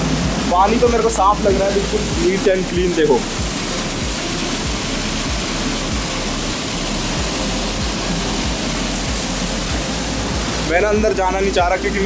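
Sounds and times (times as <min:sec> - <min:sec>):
low thumps on microphone: 0:00.0 - 0:06.1.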